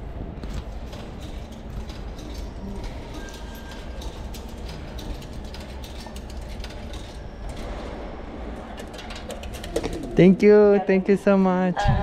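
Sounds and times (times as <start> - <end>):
mechanical clicks and clatter: 0.4 - 8.0, 8.6 - 10.3.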